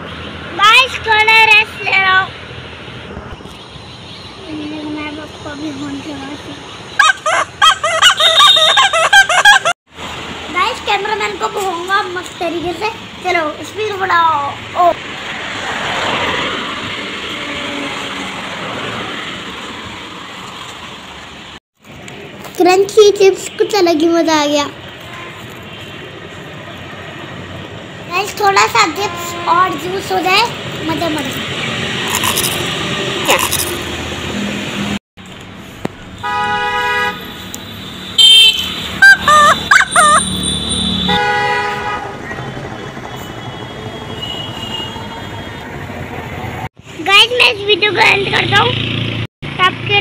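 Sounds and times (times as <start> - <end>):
bicycle riding air and tyres: 15.0 - 22.6.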